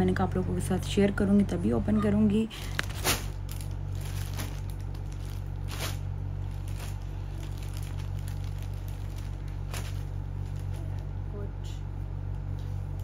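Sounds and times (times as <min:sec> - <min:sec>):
steady low hum: 0:00.0 - 0:13.0
plastic packaging crinkling: 0:02.5 - 0:11.2.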